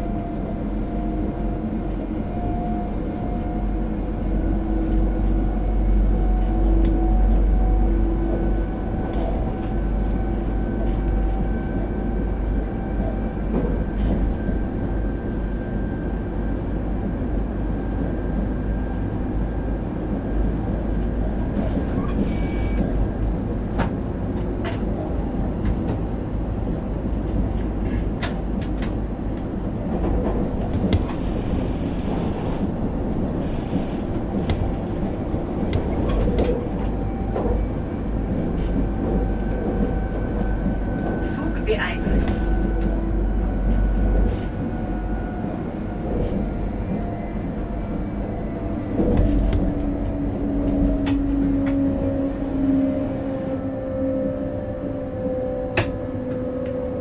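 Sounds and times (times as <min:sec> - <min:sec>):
train wheels rumbling on rail: 0:00.0 - 0:57.0
train motor whine: 0:30.7 - 0:37.6.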